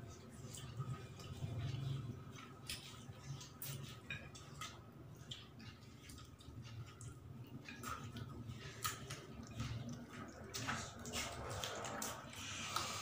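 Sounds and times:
wet chewing and lip-smacking: 0:00.0 - 0:13.0.

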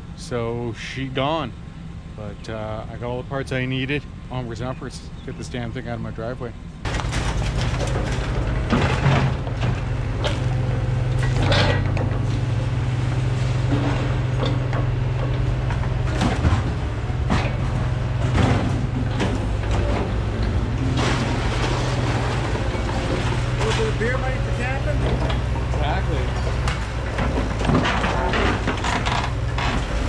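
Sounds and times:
diesel excavator engine running: 0:00.0 - 0:30.0
metal clanks and creaks: 0:06.8 - 0:30.0.

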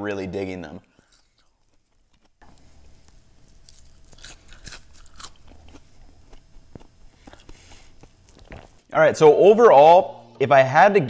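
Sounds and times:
person chewing crunchy fries: 0:00.8 - 0:08.9.

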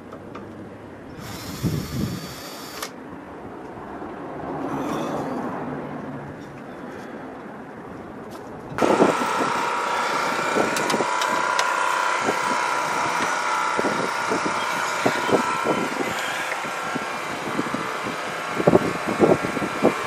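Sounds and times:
mechanical hum: 0:08.7 - 0:20.0.

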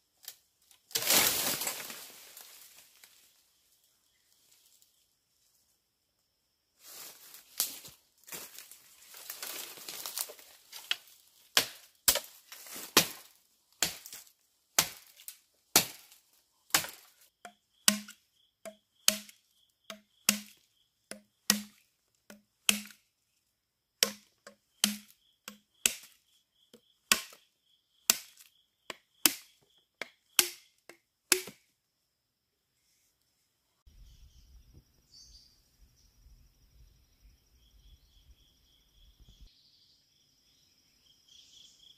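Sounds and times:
knife chopping bamboo: 0:10.8 - 0:14.2, 0:14.8 - 0:23.0, 0:24.0 - 0:26.2, 0:26.8 - 0:27.4, 0:28.0 - 0:31.7.

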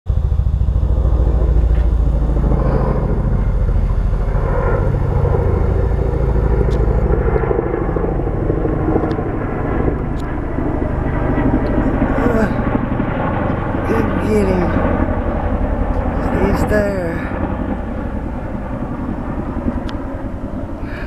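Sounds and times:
helicopter rotors beating: 0:00.1 - 0:21.0.

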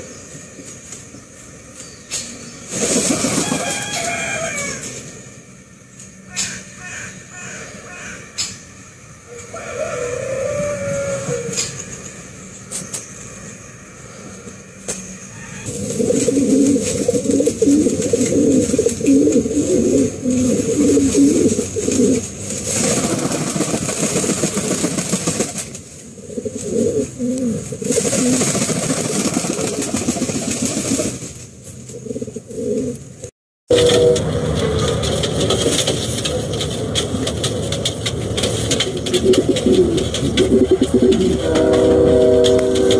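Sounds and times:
pigeon cooing: 0:15.4 - 0:23.6, 0:26.2 - 0:28.4, 0:31.9 - 0:33.0, 0:38.8 - 0:42.9.

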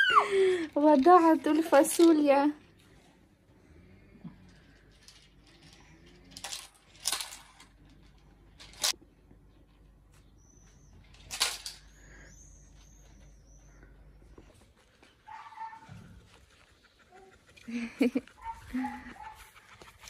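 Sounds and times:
small hard objects clinking: 0:04.4 - 0:09.0.

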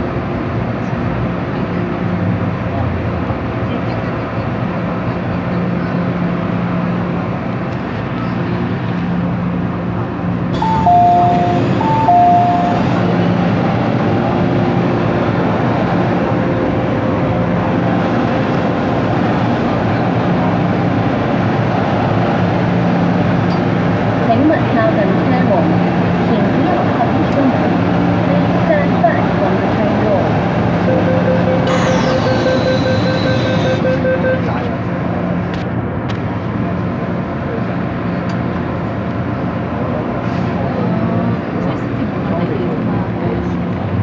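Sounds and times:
train cabin running hum: 0:00.0 - 0:44.0
platform ambience: 0:10.5 - 0:15.0, 0:29.6 - 0:34.9
two-tone door chime: 0:10.6 - 0:12.8.

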